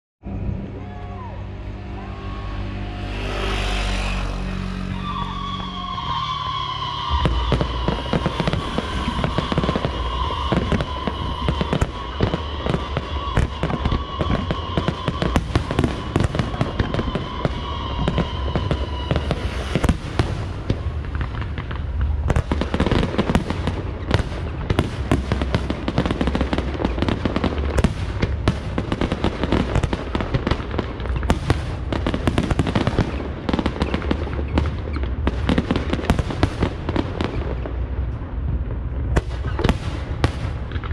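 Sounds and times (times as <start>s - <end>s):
high whistle: 1.8s - 20.8s
fireworks bangs and crackles: 2.2s - 40.9s.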